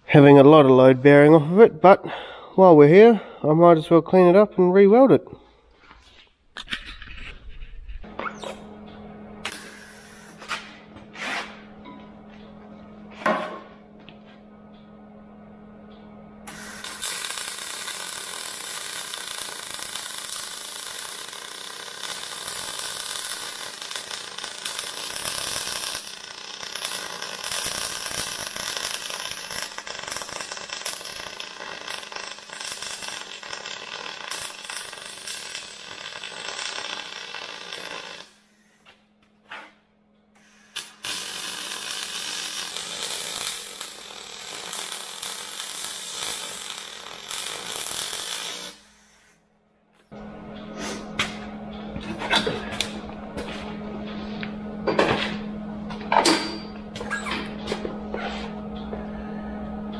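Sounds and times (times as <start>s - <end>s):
welder low hum: 0.0s - 59.9s
welding arc crackling: 9.4s - 11.6s, 16.5s - 38.7s, 40.4s - 49.4s.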